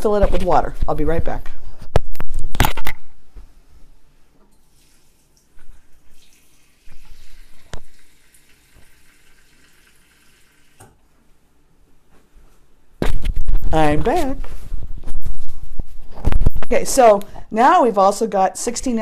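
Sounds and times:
tap running into cup: 0:06.9 - 0:08.0.

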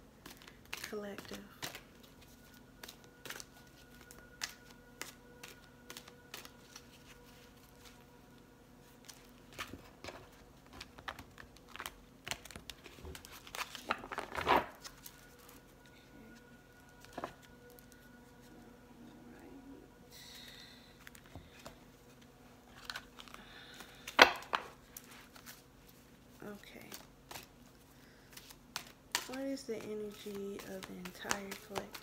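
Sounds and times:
cards being shuffled: 0:00.2 - 0:08.0, 0:08.8 - 0:15.6, 0:21.0 - 0:26.0, 0:26.6 - 0:32.0.

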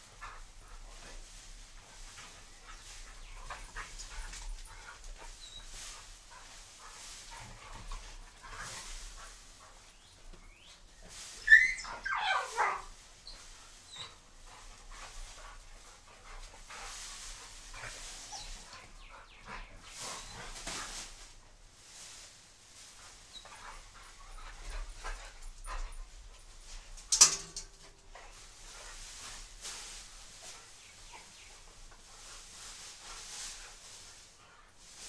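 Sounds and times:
dry grass rustling: 0:00.0 - 0:35.0
dog yelping cry: 0:11.4 - 0:12.9.

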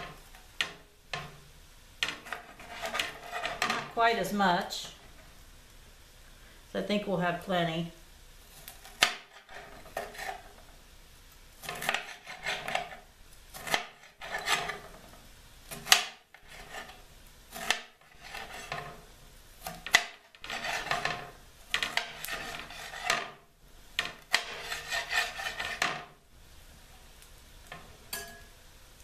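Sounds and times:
knife slicing pepper: 0:02.0 - 0:03.9, 0:08.5 - 0:10.6, 0:11.6 - 0:15.0, 0:15.6 - 0:19.0, 0:19.6 - 0:23.4, 0:24.0 - 0:26.0.

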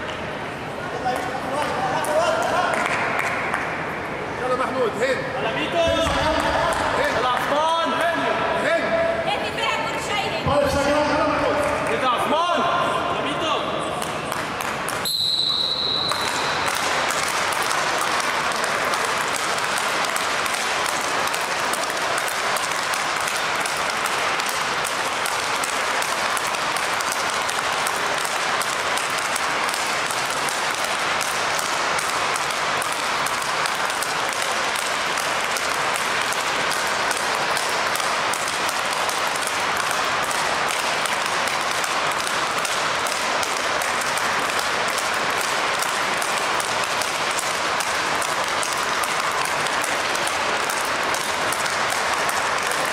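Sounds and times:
rackets hitting balls: 0:13.9 - 0:52.9.

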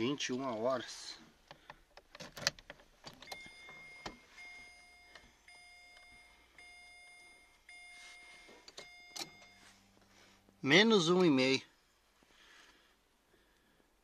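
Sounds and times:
key and ignition clicks: 0:02.0 - 0:04.2, 0:08.7 - 0:09.5
car warning chime beeps: 0:03.2 - 0:12.0.

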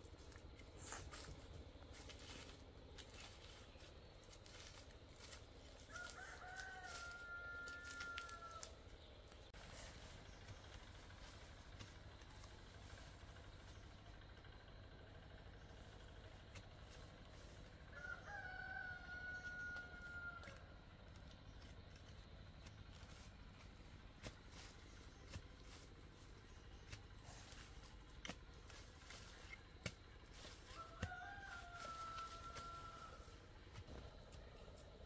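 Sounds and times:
rooster crowing: 0:05.8 - 0:08.8, 0:17.9 - 0:20.8, 0:30.4 - 0:33.4.

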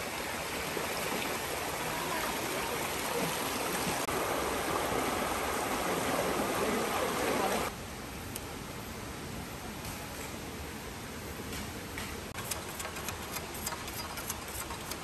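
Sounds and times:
water running over rocks: 0:00.0 - 0:07.7.

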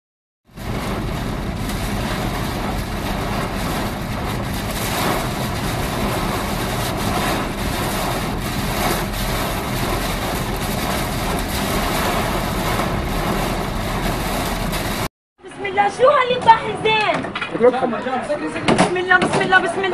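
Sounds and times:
heavy rain: 0:00.4 - 0:15.1
strong wind: 0:00.5 - 0:15.1
vehicle engine and road noise: 0:00.5 - 0:15.6.

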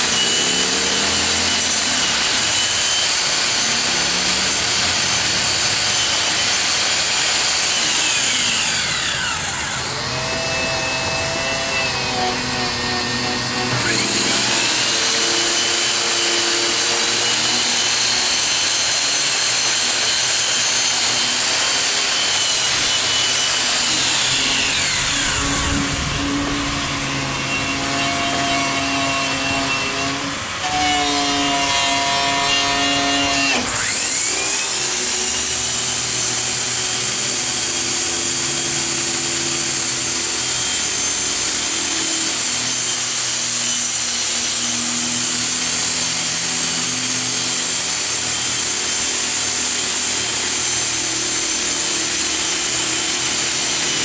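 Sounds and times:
second grinder running: 0:00.0 - 0:37.0
angle grinder grinding metal: 0:00.0 - 0:54.0.

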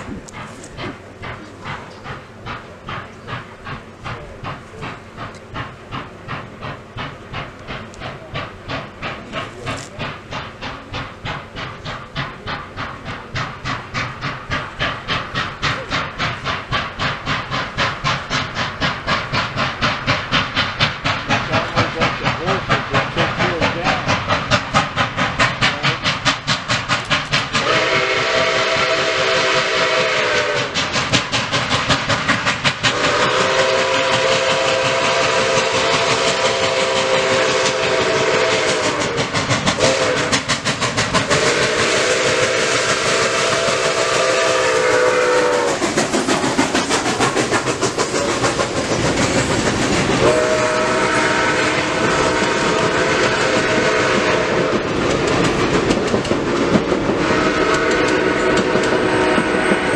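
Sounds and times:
steam locomotive exhaust chuffs: 0:00.0 - 0:59.9
train wheels clattering on rails: 0:00.0 - 0:59.9
steam whistle: 0:27.6 - 0:30.8, 0:32.9 - 0:40.5, 0:41.2 - 0:45.8, 0:50.2 - 0:54.9, 0:57.2 - 0:59.9.

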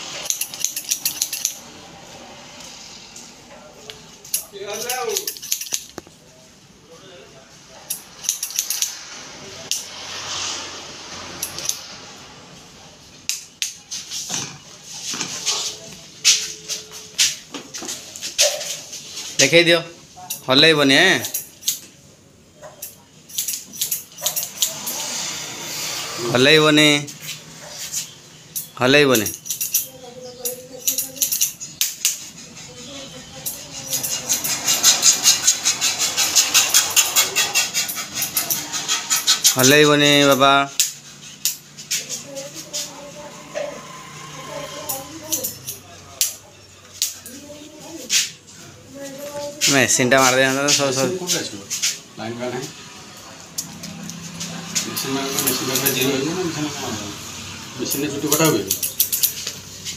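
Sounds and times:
tools clattering: 0:00.1 - 0:01.6, 0:04.2 - 0:06.1, 0:28.6 - 0:32.3, 0:57.9 - 0:59.9
scissors snipping hair: 0:00.2 - 0:01.7, 0:04.3 - 0:06.0, 0:07.9 - 0:09.0, 0:22.8 - 0:24.9, 0:28.6 - 0:32.3, 0:33.4 - 0:43.0, 0:44.7 - 0:47.4, 0:53.5 - 0:56.1, 0:57.9 - 0:59.6.

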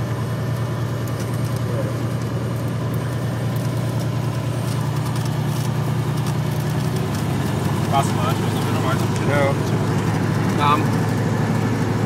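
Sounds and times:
aircraft propeller engine droning: 0:00.0 - 0:12.0.

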